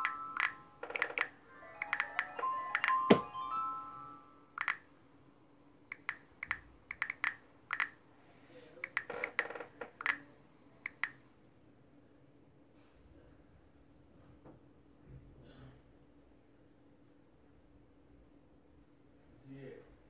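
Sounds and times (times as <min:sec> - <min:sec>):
phone keyboard clicks: 0:00.0 - 0:03.2, 0:04.6 - 0:04.8, 0:05.9 - 0:08.0, 0:08.8 - 0:10.2, 0:10.9 - 0:11.2.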